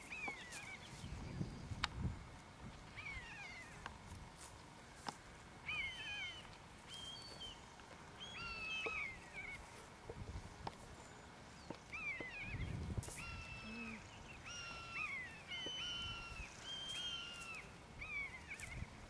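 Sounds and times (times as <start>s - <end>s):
low thumps of wind or handling: 1.0s - 3.0s.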